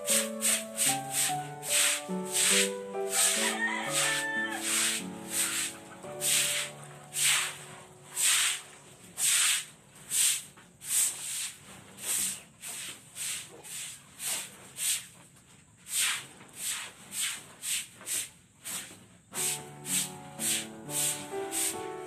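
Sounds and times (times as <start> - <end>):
scrubbing on wet concrete: 0.0 - 15.2, 15.8 - 21.9.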